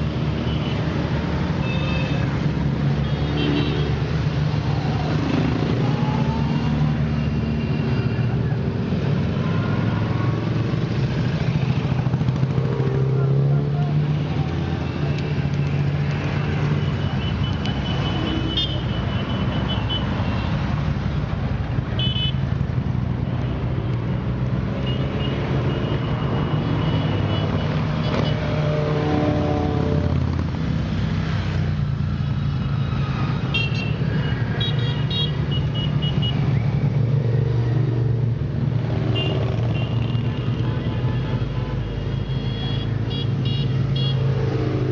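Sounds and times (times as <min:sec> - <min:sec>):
motorcycle engines droning: 0:04.0 - 0:18.9, 0:22.6 - 0:34.6.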